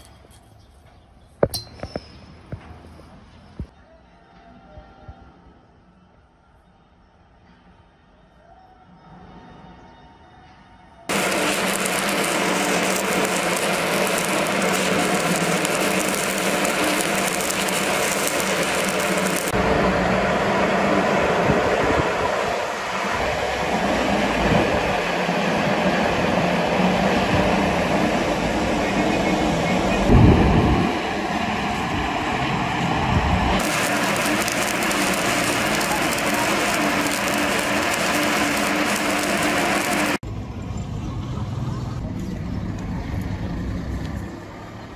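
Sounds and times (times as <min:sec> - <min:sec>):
welding arc crackling and sizzling: 0:11.1 - 0:30.1, 0:33.4 - 0:40.2.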